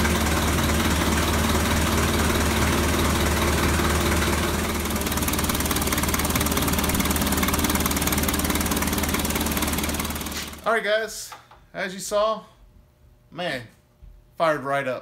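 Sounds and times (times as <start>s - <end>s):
diesel engine idling: 0.0s - 10.6s.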